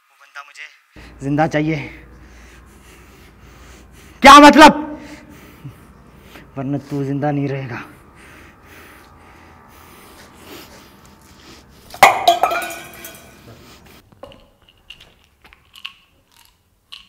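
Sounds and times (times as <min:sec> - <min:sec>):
loud metallic clang: 0:11.9 - 0:13.4.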